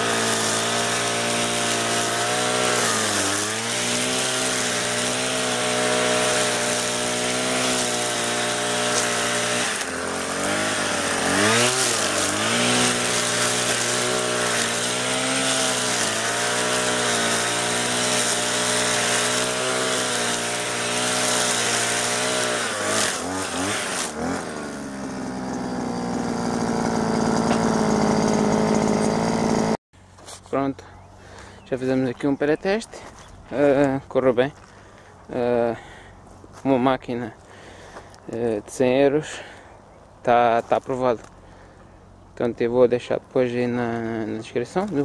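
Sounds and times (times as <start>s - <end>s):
brush cutter engine revving: 0.0s - 30.4s, 43.4s - 45.0s
nylon line cutting grass: 0.0s - 30.6s, 43.7s - 45.0s.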